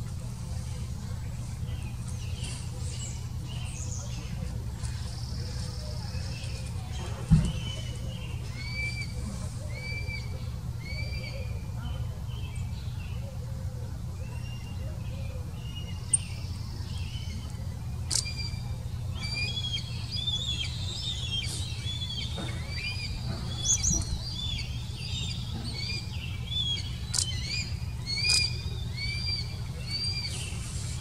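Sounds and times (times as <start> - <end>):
eagles chirping: 15.8 - 31.0.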